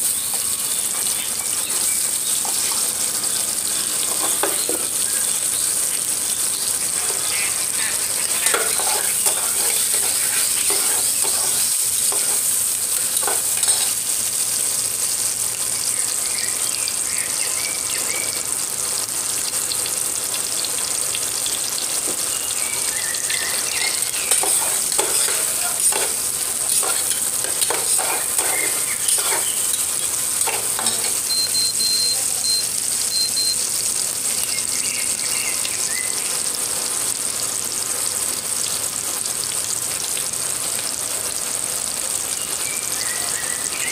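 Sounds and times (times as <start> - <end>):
vegetables sizzling in hot oil: 0.0 - 43.9
spatula scraping a pot: 4.0 - 5.0, 6.8 - 14.0, 23.5 - 31.3.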